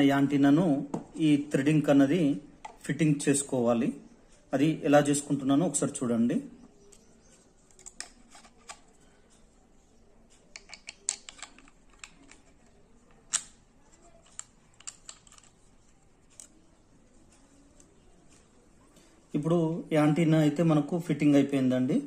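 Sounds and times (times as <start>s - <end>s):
plastic clicks and taps: 10.5s - 13.6s, 14.2s - 15.5s.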